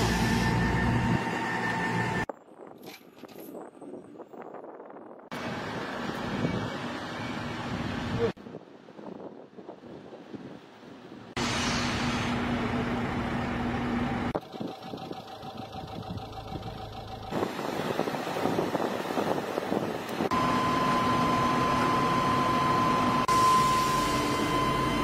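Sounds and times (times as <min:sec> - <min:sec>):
heavy machinery engines running: 0:11.4 - 0:25.0
steady high whine: 0:20.1 - 0:25.0.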